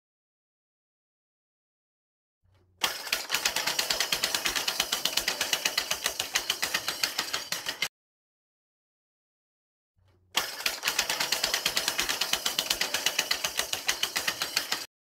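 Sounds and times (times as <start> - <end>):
chainsaw recoil starter clicking: 2.8 - 7.9, 10.4 - 14.9.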